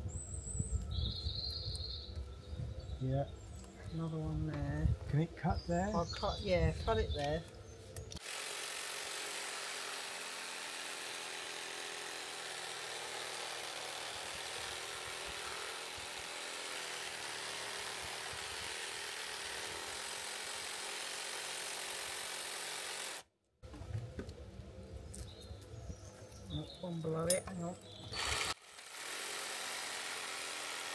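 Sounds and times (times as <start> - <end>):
power saw cutting: 8.2 - 23.3, 28.0 - 30.9.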